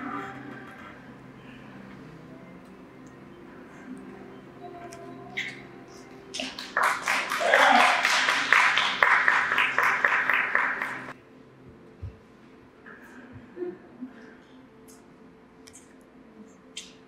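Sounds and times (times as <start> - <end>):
people clapping: 6.3 - 11.2.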